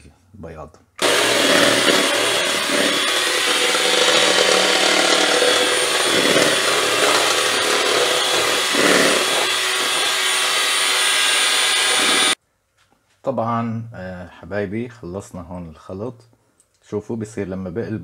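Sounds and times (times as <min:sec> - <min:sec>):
electric hand mixer running: 0:01.0 - 0:12.4.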